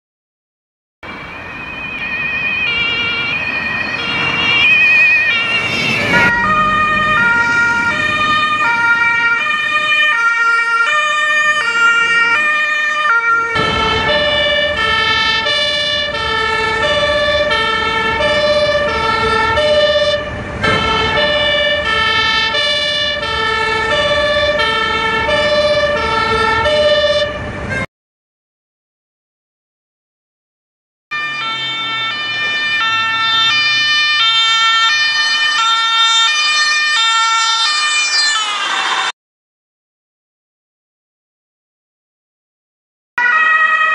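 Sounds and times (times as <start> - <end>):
low vehicle rumble: 1.0 - 27.9, 31.2 - 36.5
two-tone police siren: 1.0 - 27.9, 31.1 - 39.2, 43.2 - 43.9.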